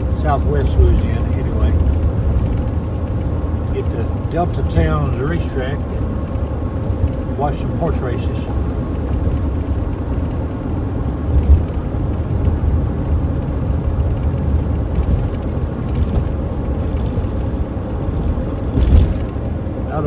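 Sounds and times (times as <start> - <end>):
car driving on a road: 0.0 - 20.0.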